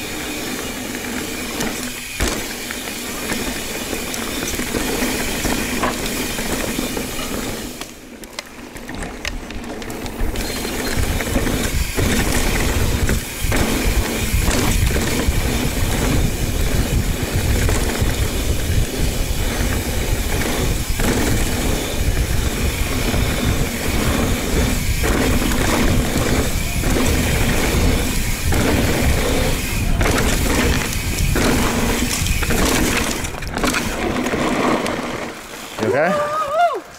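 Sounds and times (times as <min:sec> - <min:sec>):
bike tyres rumbling over dirt: 0:00.0 - 0:36.8
bike knocks: 0:01.5 - 0:03.6, 0:08.8 - 0:34.9
wind rushing over microphone: 0:10.4 - 0:34.0
heavy low wind buffeting: 0:10.9 - 0:34.2.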